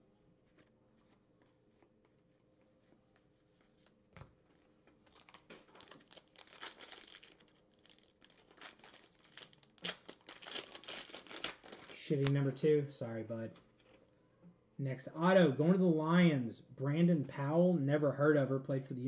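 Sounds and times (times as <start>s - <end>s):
foil wrapper crinkling and tearing: 5.1s - 12.5s.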